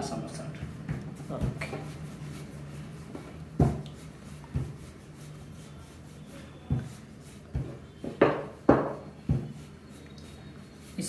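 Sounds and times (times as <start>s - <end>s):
rolling pin rubbing on dough: 0.0s - 11.0s
rolling pin knocking on board: 3.6s - 3.8s, 4.5s - 4.8s, 6.7s - 9.6s.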